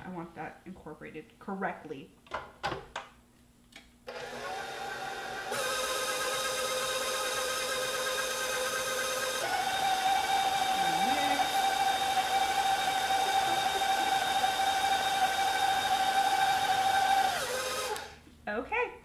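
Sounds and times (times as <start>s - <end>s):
stand mixer motor whining: 4.1s - 18.2s.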